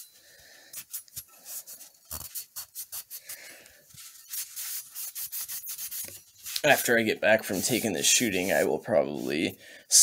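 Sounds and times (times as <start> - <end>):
rag rubbing metal barrel: 4.3 - 9.5.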